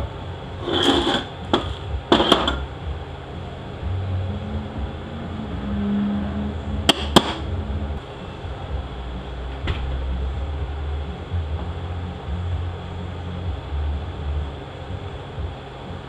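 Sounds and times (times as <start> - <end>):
metal parts clinking and scraping: 0.6 - 2.6.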